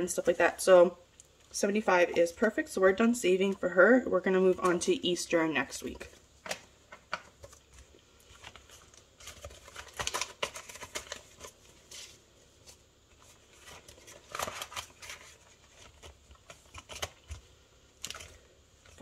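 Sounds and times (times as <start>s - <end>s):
banknotes rustling: 7.4s - 19.0s
plastic zipper pouch crinkling: 7.5s - 12.0s, 13.2s - 19.0s.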